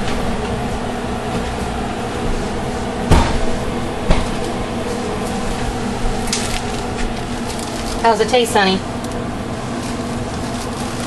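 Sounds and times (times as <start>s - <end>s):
steady kitchen hum: 0.0s - 11.0s
sharp knocks: 3.1s - 4.4s.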